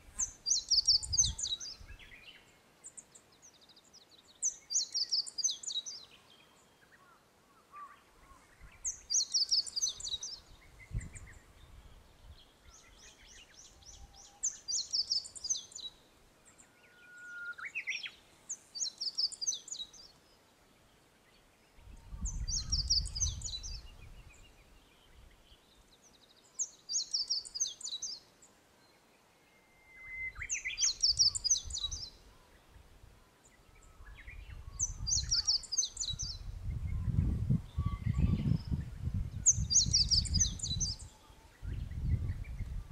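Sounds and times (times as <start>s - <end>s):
wind rumbling on microphone: 0.0s - 2.2s, 8.5s - 14.3s, 21.8s - 25.6s, 30.2s - 33.1s, 33.7s - 42.9s
songbird singing high phrase: 0.2s - 6.9s, 8.6s - 16.0s, 21.8s - 28.3s, 29.5s - 32.7s, 33.5s - 42.8s
songbird whistling: 16.9s - 18.1s, 29.6s - 31.9s.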